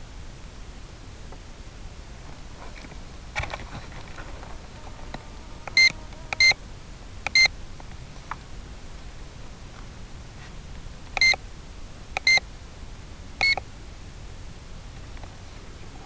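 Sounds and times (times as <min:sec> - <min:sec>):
steady hiss: 0:00.0 - 0:16.0
short electronic beeps: 0:05.7 - 0:06.6, 0:07.3 - 0:07.5, 0:11.2 - 0:11.4, 0:12.2 - 0:12.4, 0:13.4 - 0:13.6.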